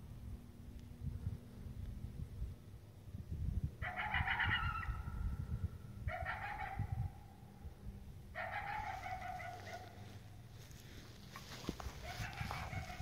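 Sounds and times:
coyote barking calls: 0:03.8 - 0:05.4, 0:06.0 - 0:07.7, 0:08.3 - 0:13.0.

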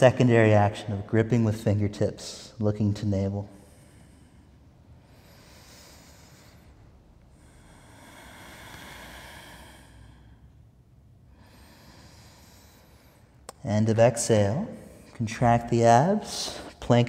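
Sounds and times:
man breathing deeply: 0:03.5 - 0:13.5.

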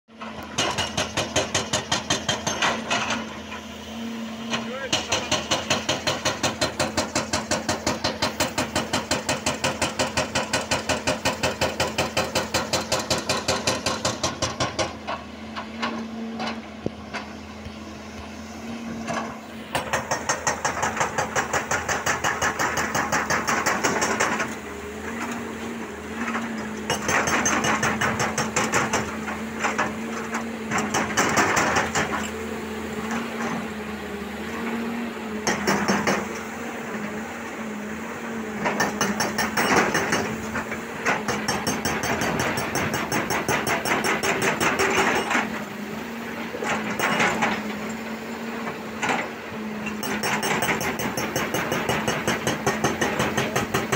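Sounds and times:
hydraulic rock breaker hammering: 0:00.2 - 0:03.4, 0:04.4 - 0:16.5, 0:19.1 - 0:32.4, 0:35.4 - 0:37.2, 0:38.5 - 0:45.7, 0:46.5 - 0:53.9
diesel engine hum: 0:13.4 - 0:41.5.

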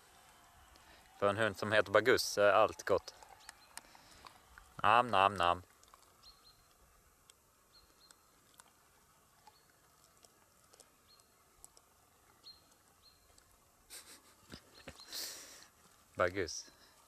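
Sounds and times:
dog gnawing a bone: 0:05.4 - 0:13.6.

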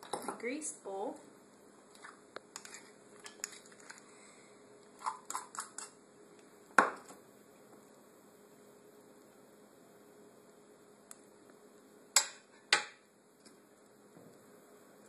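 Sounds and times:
utensil scraping batter in bowl: 0:01.9 - 0:04.0.

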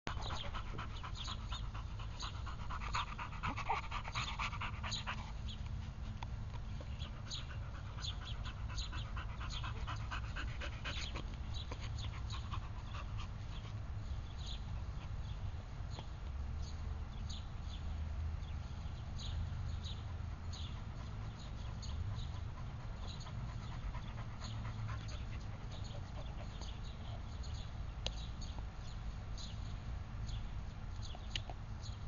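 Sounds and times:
dog panting: 0:00.1 - 0:15.2, 0:19.8 - 0:27.3.

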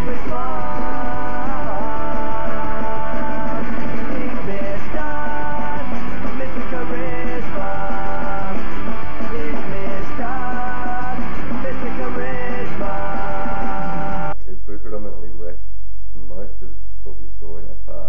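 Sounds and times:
electric guitar: 0:00.0 - 0:14.4
punk rock band playing: 0:00.0 - 0:14.4.

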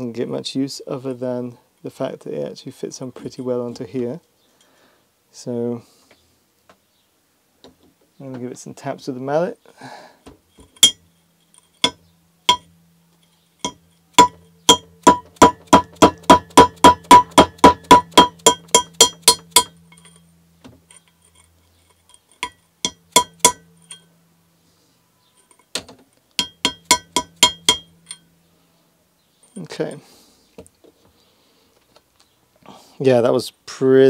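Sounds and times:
mallet tapping on metal tool: 0:10.8 - 0:12.8, 0:13.6 - 0:20.2, 0:22.1 - 0:24.1, 0:26.4 - 0:28.2.

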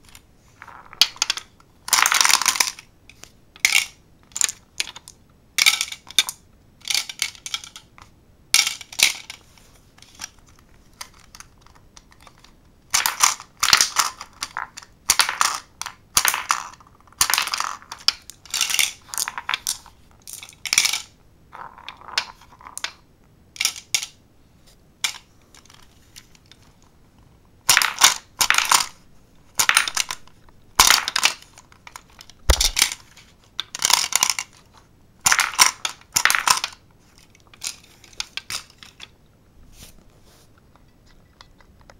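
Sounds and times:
marbles clattering on wood: 0:00.6 - 0:02.9, 0:03.6 - 0:07.9, 0:08.6 - 0:23.0, 0:23.6 - 0:24.2, 0:27.6 - 0:39.2
marbles clacking into targets: 0:13.0 - 0:23.0, 0:27.6 - 0:34.6, 0:35.2 - 0:36.8.

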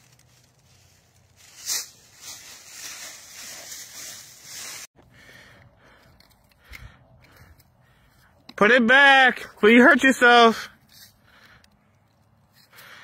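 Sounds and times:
dry leaves rustling: 0:00.0 - 0:04.9.

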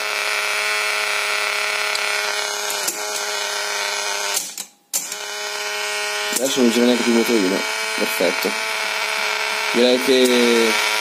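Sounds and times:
electrical buzz from loudspeaker: 0:05.0 - 0:11.0.

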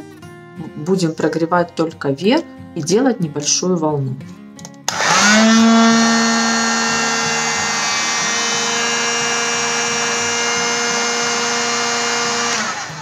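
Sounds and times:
heat gun fan whine: 0:04.9 - 0:13.0.

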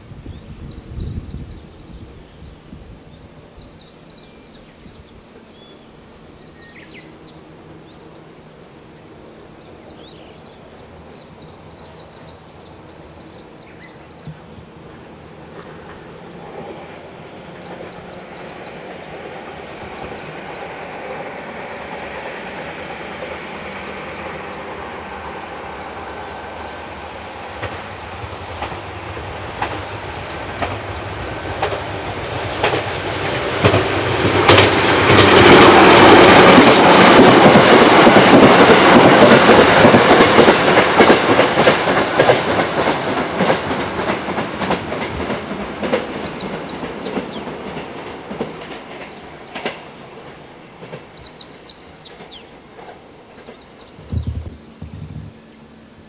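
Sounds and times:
train passing at speed: 0:00.0 - 0:56.0
wheels clacking over rail joints: 0:12.1 - 0:54.8.

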